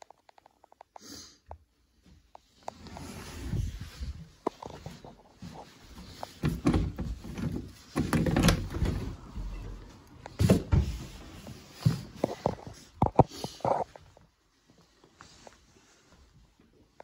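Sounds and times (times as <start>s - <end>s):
footsteps: 2.0s - 16.8s
door knocks and clunks: 6.4s - 9.8s.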